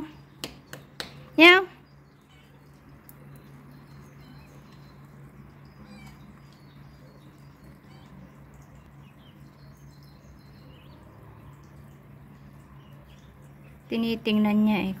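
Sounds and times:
high bird chirps: 0.0 - 11.7
steady low hum: 0.0 - 15.0.

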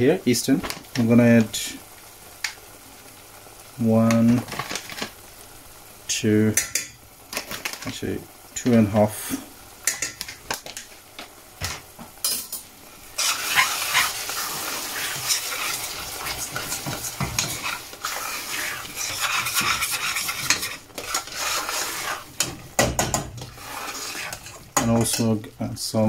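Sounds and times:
spices frying in oil: 0.0 - 26.0
spoon stirring and scraping pan: 13.2 - 25.4.

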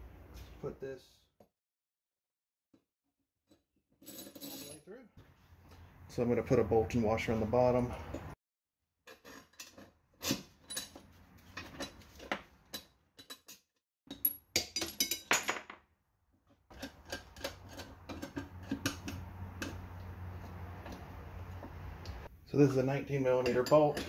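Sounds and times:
metal bolt and washer clinking: 12.7 - 15.6.

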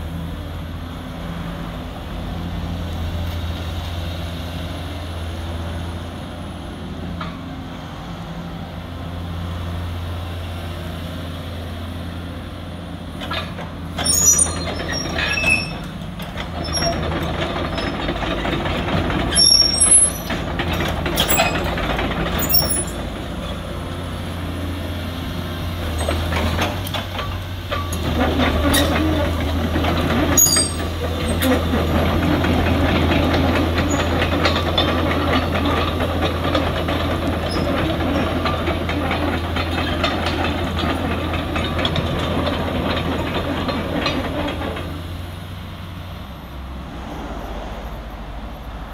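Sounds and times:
diesel engine running: 0.0 - 48.9
steel tracks clattering: 13.1 - 48.9.

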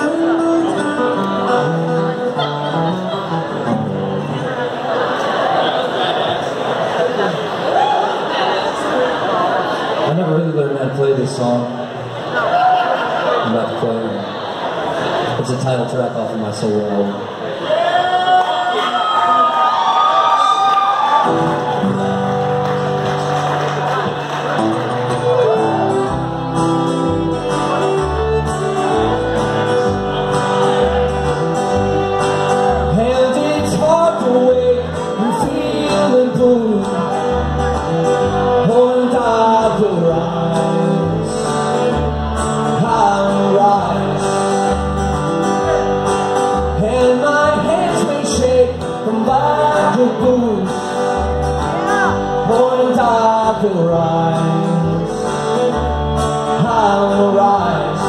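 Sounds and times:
acoustic guitar strumming: 0.0 - 4.8, 21.2 - 58.0
fiddle bowed: 24.6 - 34.0
man singing: 30.2 - 44.8, 46.4 - 58.0.

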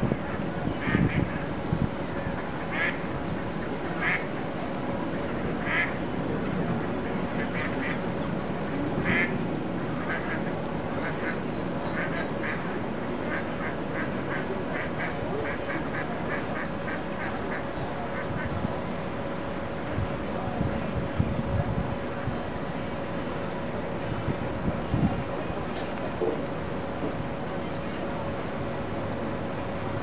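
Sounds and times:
mallards calling: 0.3 - 1.4, 2.6 - 3.0, 4.0 - 4.3, 5.6 - 6.0, 7.1 - 8.0, 9.0 - 9.3, 10.0 - 17.6.

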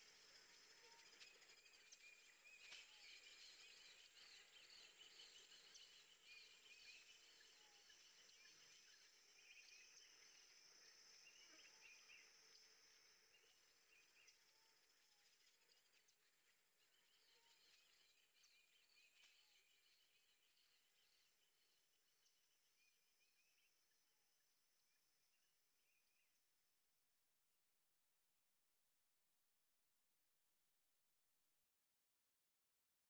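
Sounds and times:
small birds chirping: 0.0 - 23.6.

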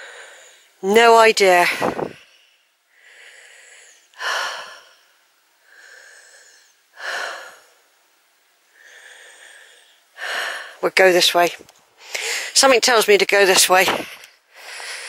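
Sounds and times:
heavy breathing: 0.0 - 0.8, 1.6 - 7.9, 8.7 - 10.8, 12.0 - 12.6, 14.0 - 15.0.

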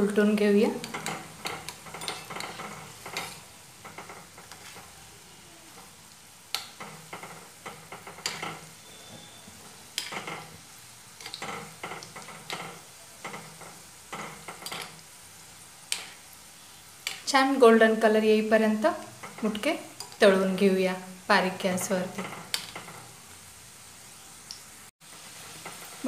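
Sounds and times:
oil sizzling while deep-frying: 0.0 - 26.0
metal spoon clinking on pan: 0.8 - 3.4, 8.2 - 9.4.

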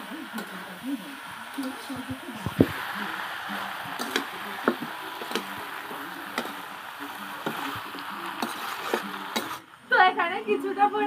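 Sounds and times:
meat sizzling: 0.0 - 11.0
metal spatula scraping pan: 7.4 - 9.6.

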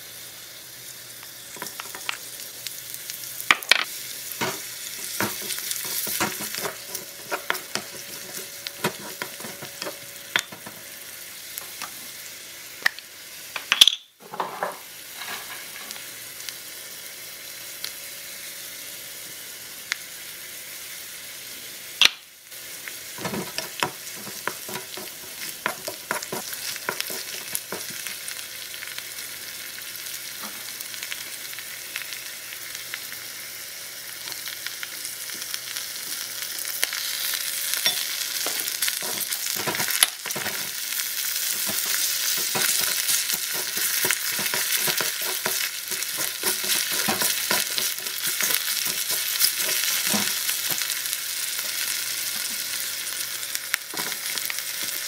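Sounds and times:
garlic and onion sizzling in a wok: 0.0 - 55.0
spatula scraping a pan: 4.4 - 10.8, 23.2 - 28.1, 37.8 - 40.8, 41.4 - 50.8.

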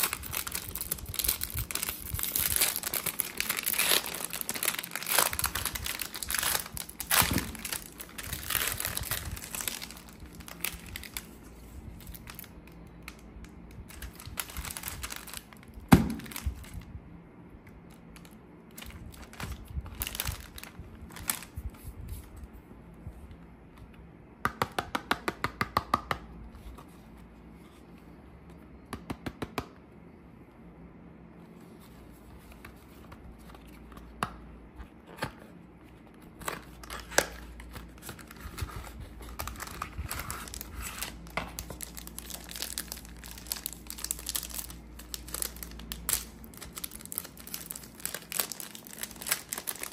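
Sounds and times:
wrapper crinkling: 0.0 - 11.4, 13.9 - 16.8, 17.9 - 21.7, 36.4 - 49.9.

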